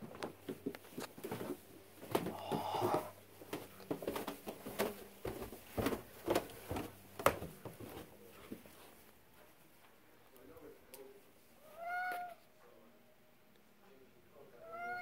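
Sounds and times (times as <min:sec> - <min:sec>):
footsteps on carpeted stairs: 0:00.0 - 0:10.0.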